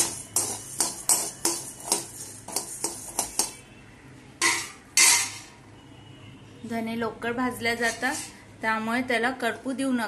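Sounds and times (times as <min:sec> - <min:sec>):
seeds rattling in pan: 0:00.0 - 0:03.6
spatula scraping metal pan: 0:00.0 - 0:03.6, 0:04.4 - 0:05.5, 0:07.8 - 0:08.5.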